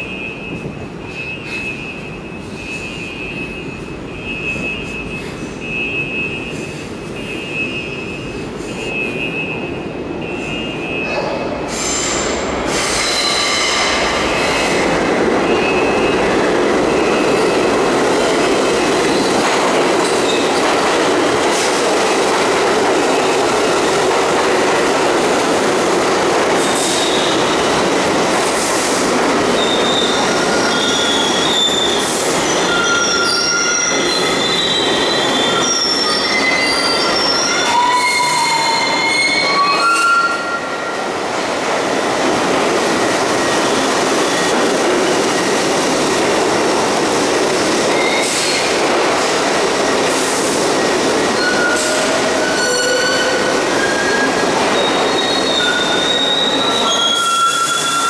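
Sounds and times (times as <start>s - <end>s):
train wheels squealing: 10.3s - 14.8s, 26.6s - 27.8s, 29.5s - 41.0s, 47.9s - 48.8s, 51.2s - 58.0s.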